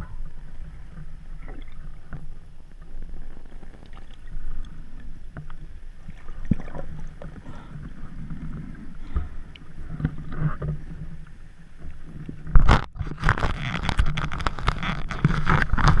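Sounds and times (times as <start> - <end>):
muffled underwater rumble: 0.0 - 16.0
splashing water: 6.0 - 7.7.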